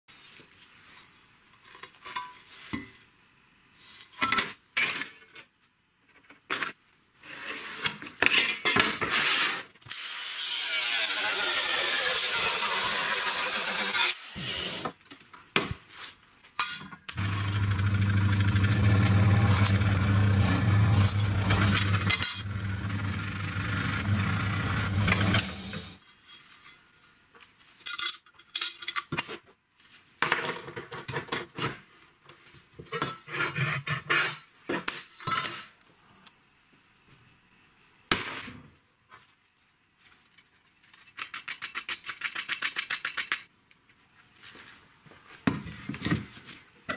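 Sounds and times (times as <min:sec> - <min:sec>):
power tool running with low hum: 0:17.2 - 0:26.0.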